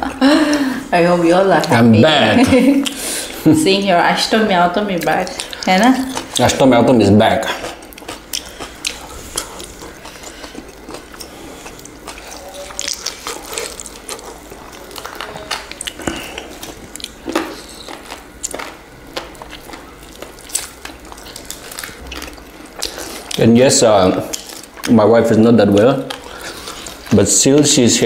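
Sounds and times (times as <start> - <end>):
wet chewing and mouth smacks: 2.8 - 3.4, 5.0 - 6.6, 7.4 - 23.4, 24.1 - 24.9, 25.7 - 27.2.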